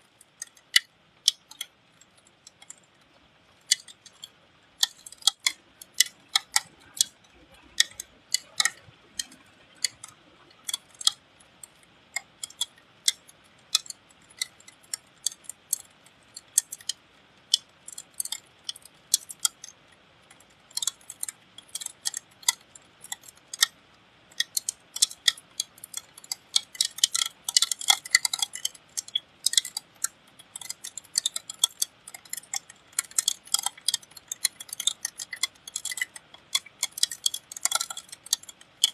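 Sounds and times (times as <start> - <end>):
raindrops tapping on metal: 0.0 - 38.9.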